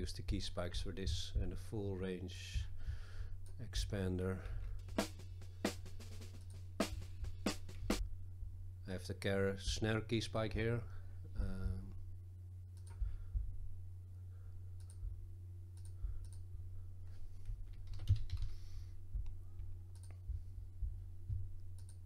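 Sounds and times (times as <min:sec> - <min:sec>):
steady low hum: 0:00.0 - 0:22.0
computer mouse clicks: 0:12.8 - 0:13.0, 0:14.8 - 0:15.0, 0:15.8 - 0:16.4, 0:17.4 - 0:18.6, 0:19.9 - 0:20.2, 0:21.7 - 0:22.0
keyboard keystrokes: 0:17.6 - 0:18.6.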